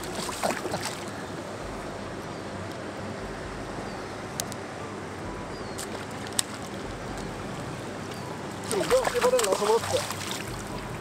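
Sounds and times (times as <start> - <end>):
short splashes: 0.0 - 1.2, 8.1 - 11.0
flowing river water: 0.0 - 11.0.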